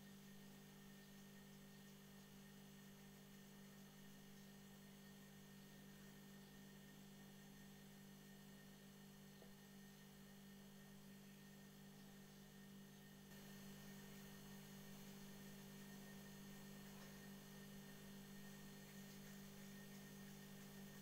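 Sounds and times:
faint steady hum: 0:00.0 - 0:21.0.

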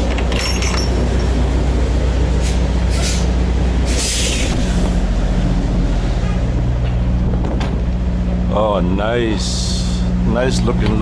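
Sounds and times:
truck diesel engine idling: 0:00.0 - 0:11.0
short air hisses: 0:02.4 - 0:04.9.

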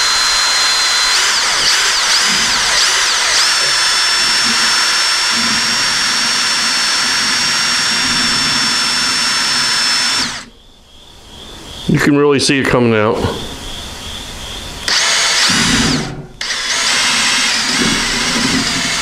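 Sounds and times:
cordless drill motor whine: 0:00.0 - 0:10.5, 0:14.8 - 0:19.0.

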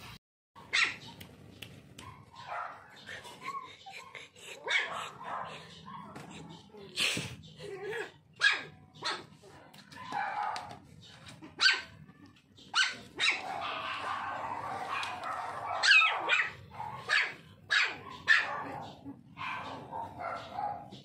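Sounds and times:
puppies yapping: 0:00.6 - 0:06.9, 0:07.6 - 0:21.0.

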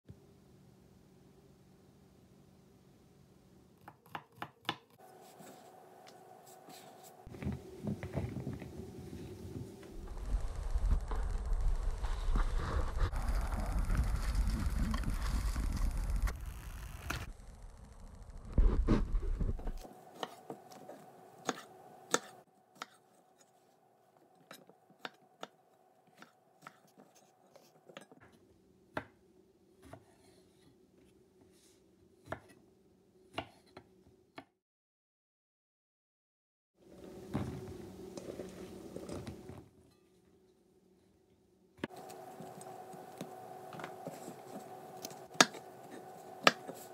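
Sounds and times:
faint steady hum: 0:05.0 - 0:27.8, 0:36.8 - 0:46.9
low rumble: 0:08.6 - 0:19.8
knife chopping on wooden board: 0:46.4 - 0:46.8.

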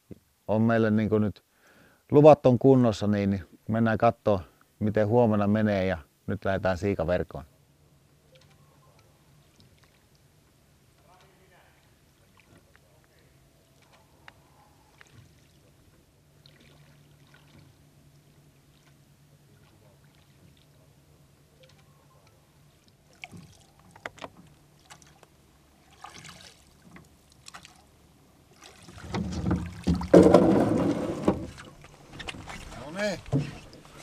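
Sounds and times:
faint low hum: 0:03.0 - 0:34.0
knocks: 0:29.1 - 0:31.6.

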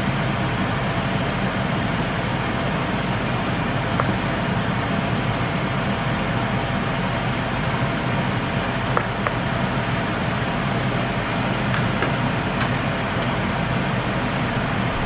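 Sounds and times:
steady rushing noise: 0:13.8 - 0:15.0.

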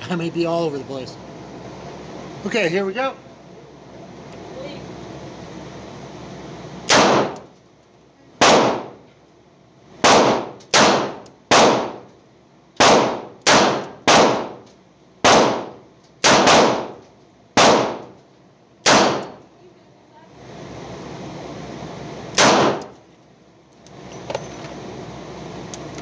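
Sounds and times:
gunshots echoing indoors: 0:06.9 - 0:07.4, 0:08.4 - 0:09.0, 0:10.0 - 0:12.0, 0:12.8 - 0:14.6, 0:15.2 - 0:17.0, 0:17.6 - 0:18.1, 0:18.8 - 0:19.4, 0:22.4 - 0:22.9.

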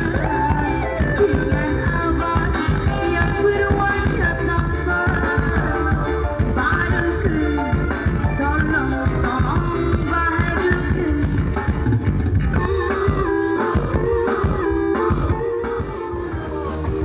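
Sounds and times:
loud music from speakers: 0:00.0 - 0:17.0.

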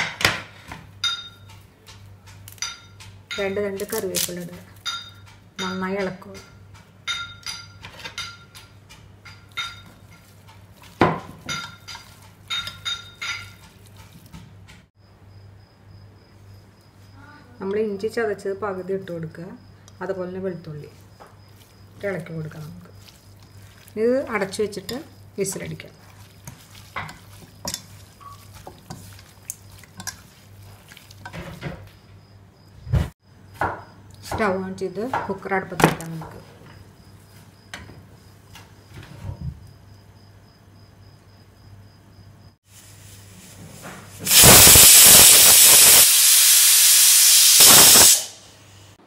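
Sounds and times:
steel pot clinking: 0:01.0 - 0:03.8, 0:04.8 - 0:14.2, 0:22.1 - 0:31.8
hand mixing raw meat: 0:09.5 - 0:14.6, 0:20.8 - 0:31.6.

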